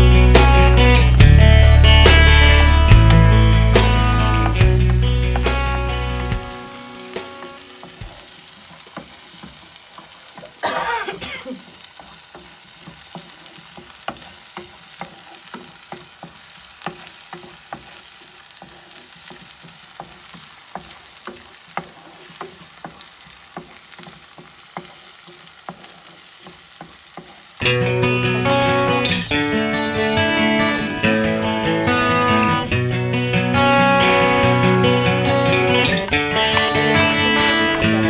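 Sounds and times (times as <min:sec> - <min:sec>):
onion sizzling in oil: 0:00.0 - 0:38.0
utensil scraping pan: 0:11.9 - 0:38.0.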